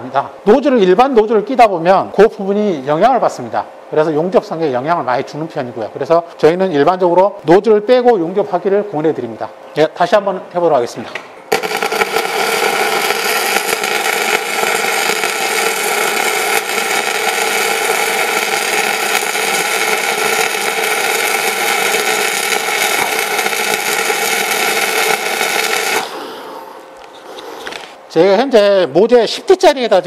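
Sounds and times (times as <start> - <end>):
welding arc crackling: 11.5 - 28.0.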